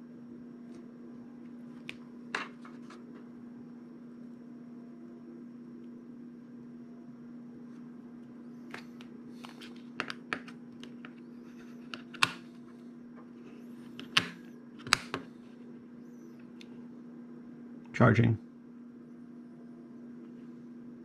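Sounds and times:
sharp plastic snaps: 0:14.0 - 0:15.3.

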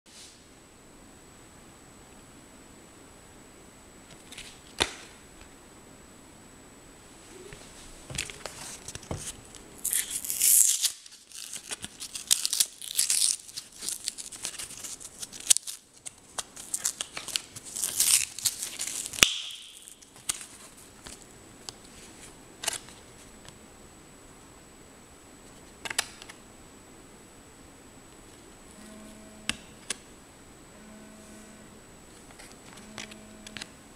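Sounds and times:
blister pack tearing and crinkling: 0:08.2 - 0:21.2.

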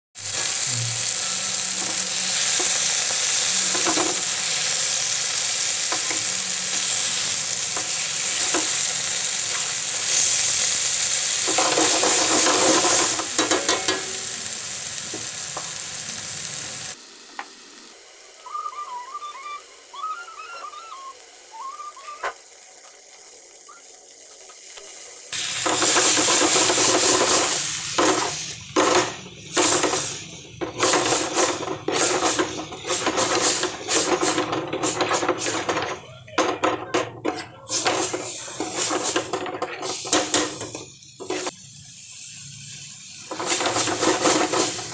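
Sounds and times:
food sizzling in a wok: 0:00.2 - 0:44.9
spatula scraping a wok: 0:01.8 - 0:14.2, 0:25.6 - 0:35.9, 0:37.3 - 0:41.6, 0:43.3 - 0:44.9.

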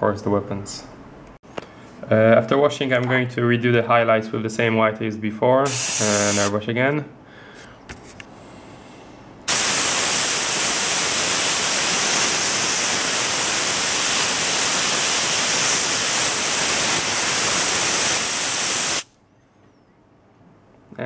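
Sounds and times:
airbrush spraying air hiss: 0:05.7 - 0:06.6, 0:09.5 - 0:19.1.

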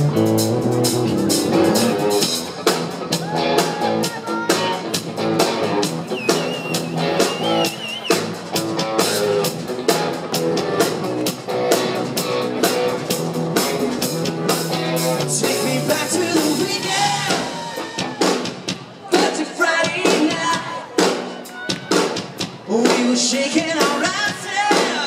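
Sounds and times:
electric guitars: 0:00.0 - 0:18.7
drum kit beat: 0:00.0 - 0:25.0.

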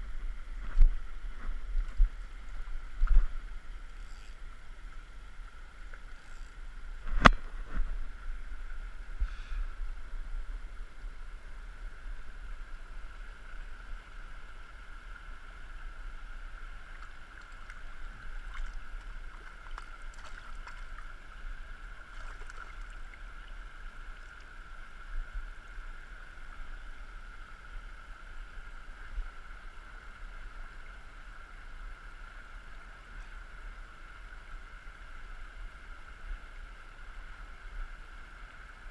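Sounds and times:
stream running over stones: 0:00.0 - 0:38.9.

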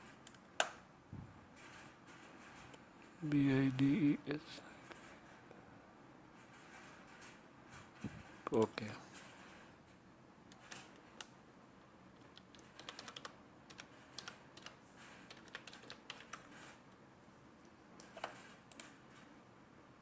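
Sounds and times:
typing on computer keyboard: 0:10.5 - 0:11.3, 0:12.2 - 0:16.8, 0:18.0 - 0:19.2.

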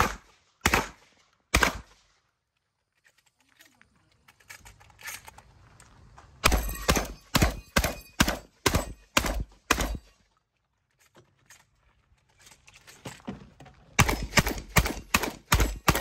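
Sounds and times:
shotgun shots: 0:00.0 - 0:02.0, 0:06.4 - 0:10.1, 0:14.0 - 0:16.0.

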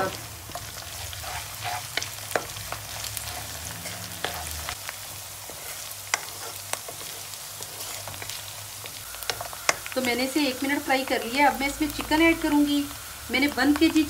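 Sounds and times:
food sizzling in hot oil: 0:00.0 - 0:14.0
wooden spoon scraping pan: 0:00.9 - 0:04.8, 0:05.4 - 0:08.4.

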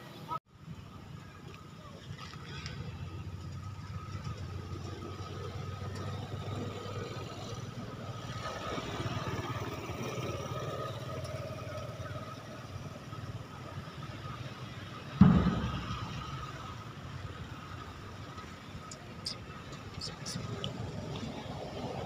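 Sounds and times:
sudden dull thump: 0:15.2 - 0:16.5.

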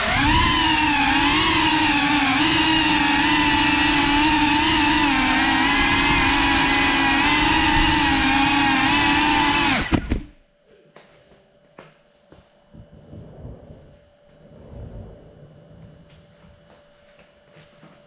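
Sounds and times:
drone propellers buzzing: 0:00.0 - 0:10.4.

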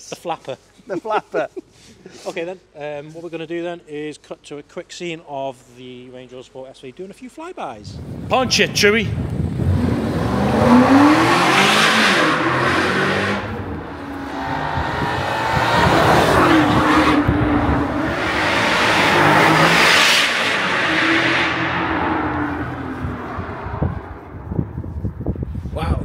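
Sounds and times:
car engine accelerating past: 0:09.1 - 0:24.7.

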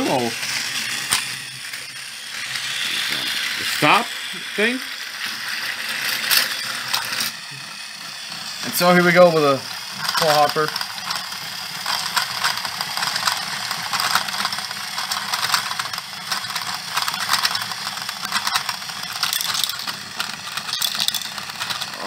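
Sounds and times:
toy crank clicking and rattling: 0:00.0 - 0:22.0
plastic balls clattering: 0:08.6 - 0:22.0.

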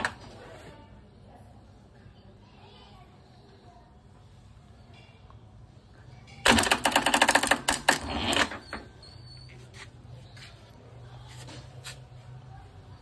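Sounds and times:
electric starter rapid clicking: 0:06.5 - 0:08.5.

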